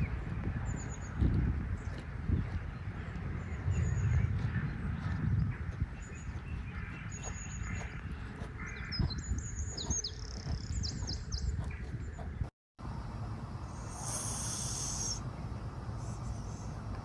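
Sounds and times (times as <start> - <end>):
high falling chirps: 13.8 - 15.2.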